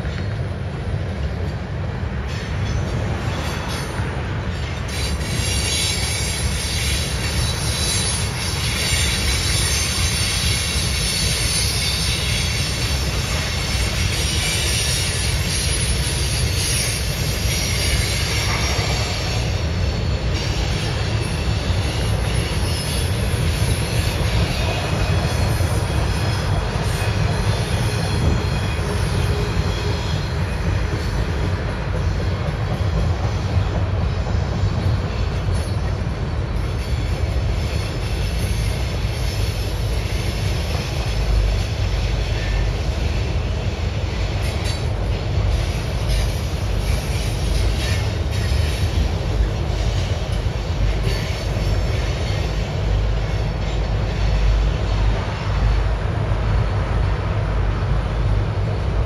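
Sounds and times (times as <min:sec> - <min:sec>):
rumble of train wheels on rail: 0:00.0 - 0:59.0
high wheel squeal: 0:02.2 - 0:31.4.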